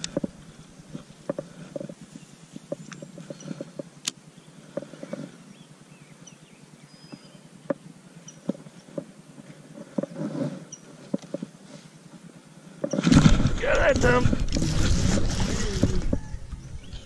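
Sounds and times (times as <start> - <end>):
faint bird chirps: 2.1 - 9.0.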